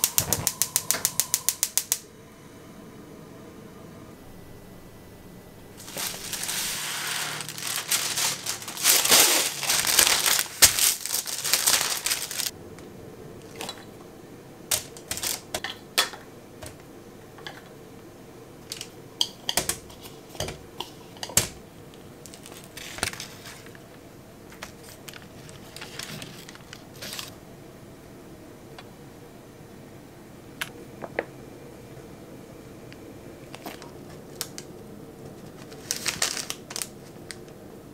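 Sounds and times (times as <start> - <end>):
parchment paper crinkling and tearing: 5.8 - 12.5, 14.7 - 15.6, 22.3 - 23.8, 24.6 - 27.3, 33.6 - 34.7, 35.3 - 37.4.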